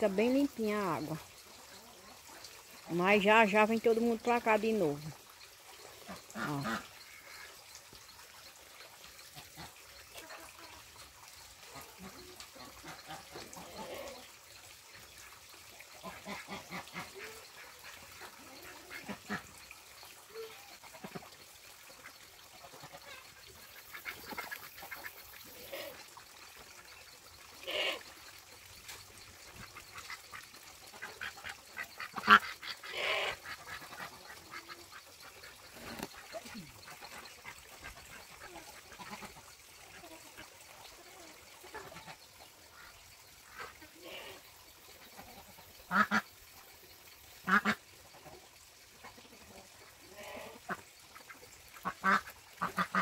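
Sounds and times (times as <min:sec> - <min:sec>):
waterfowl calling: 0:45.0 - 0:46.4, 0:47.4 - 0:47.8, 0:50.2 - 0:53.0.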